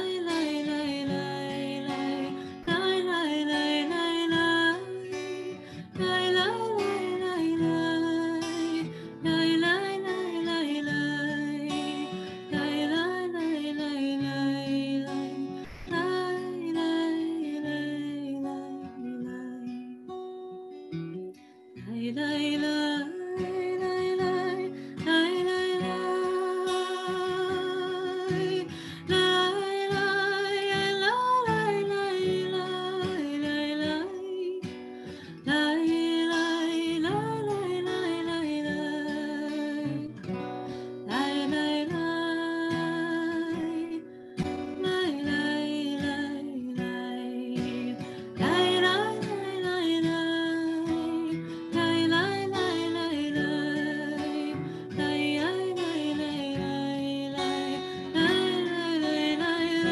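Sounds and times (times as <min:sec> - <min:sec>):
person singing: 0:00.0 - 0:20.1, 0:41.0 - 0:59.9
acoustic guitar: 0:00.0 - 0:59.9.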